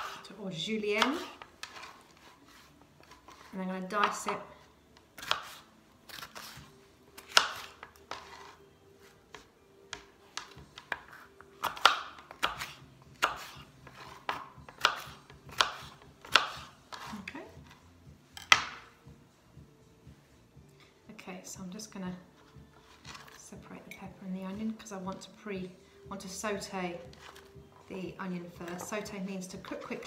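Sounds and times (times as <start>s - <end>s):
knife chopping on plastic board: 5.2s - 6.6s, 7.2s - 8.3s, 9.3s - 17.3s.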